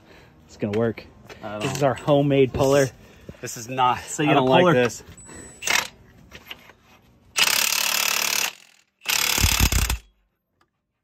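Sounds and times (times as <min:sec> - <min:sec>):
impact wrench hammering: 0:07.4 - 0:10.1.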